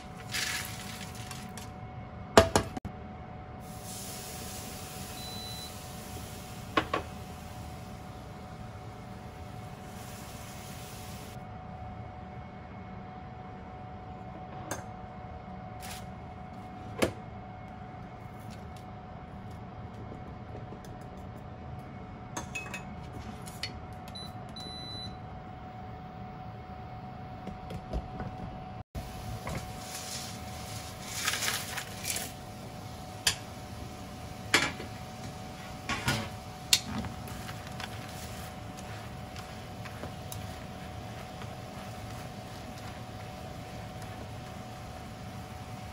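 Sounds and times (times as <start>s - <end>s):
steady hum: 28.3s - 45.9s
faint constant whine: 28.5s - 45.9s
dried fish sliding into pan: 29.6s - 32.3s.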